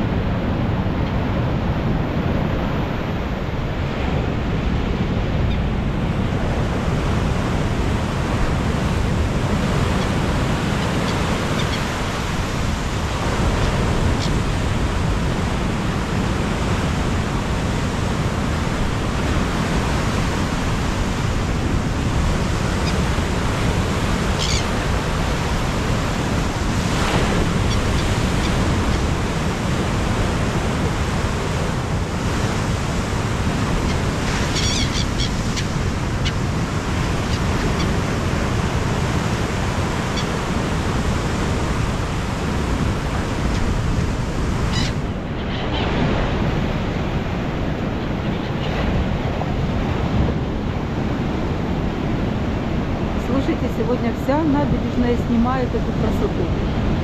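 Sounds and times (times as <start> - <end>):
waves breaking on shore: 0.0 - 57.0
gull cries: 24.4 - 24.7, 33.8 - 36.4, 44.7 - 45.9.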